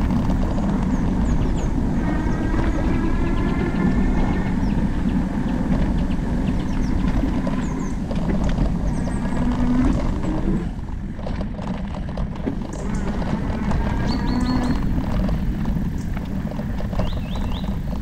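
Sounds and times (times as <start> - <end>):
birds chirping: 0.0 - 10.9, 12.3 - 18.0
tyres rolling on dirt: 0.0 - 18.0
wind rushing on camera: 0.0 - 18.0
ticks from trail surface: 11.1 - 18.0.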